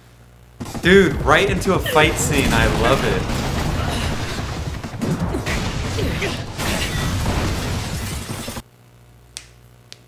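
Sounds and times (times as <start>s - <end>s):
background music: 0.9s - 3.2s
mechanical whirring and rattling: 3.2s - 8.6s.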